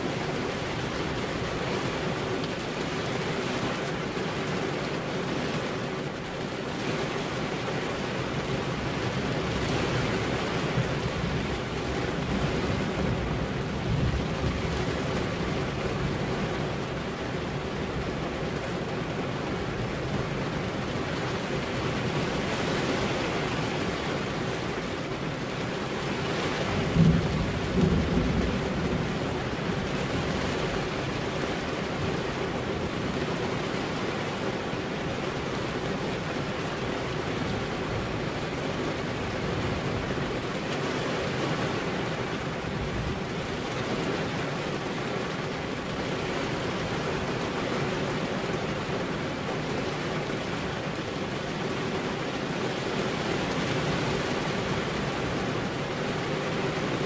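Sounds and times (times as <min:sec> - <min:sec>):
heavy rain: 0:00.0 - 0:57.0
low rumble of thunder: 0:09.2 - 0:18.4, 0:26.5 - 0:33.1.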